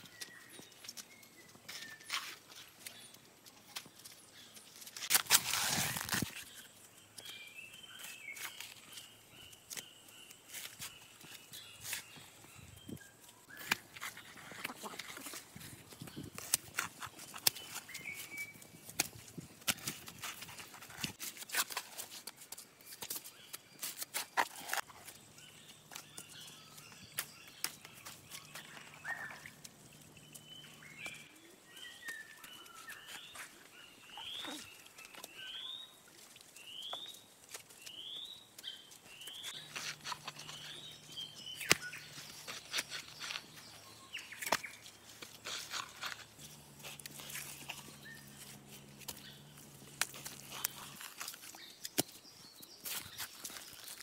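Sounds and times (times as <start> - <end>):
hands handling wet clay: 0.0 - 54.0
shovel knocking and scraping clay: 39.3 - 52.2.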